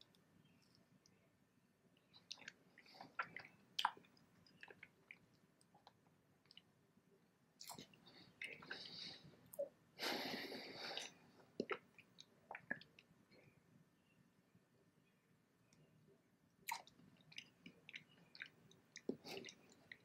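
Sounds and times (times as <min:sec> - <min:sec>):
person chewing: 0:02.2 - 0:06.7, 0:16.7 - 0:20.0
wet mouth clicks: 0:16.7 - 0:20.0.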